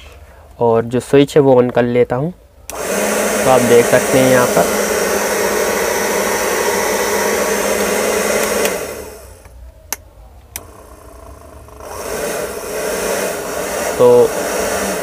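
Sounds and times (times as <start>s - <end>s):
hair dryer blowing hum: 2.7s - 9.5s, 10.6s - 15.0s
switch clicks: 8.3s - 8.8s, 9.4s - 10.7s.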